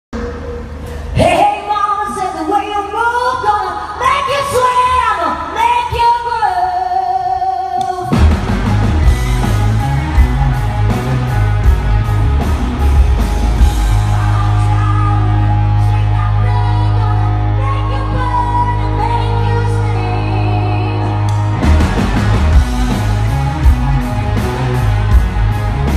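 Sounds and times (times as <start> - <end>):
woman singing: 1.2 - 8.2, 14.0 - 21.3
rock band heavy riff: 8.1 - 25.9.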